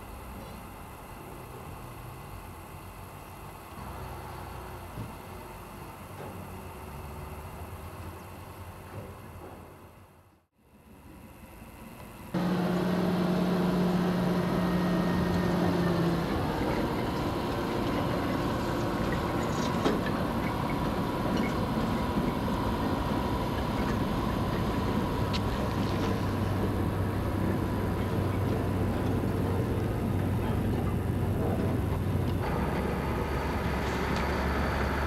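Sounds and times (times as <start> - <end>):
steady whine: 10.8 - 35.0
locomotive engine running: 12.4 - 35.0.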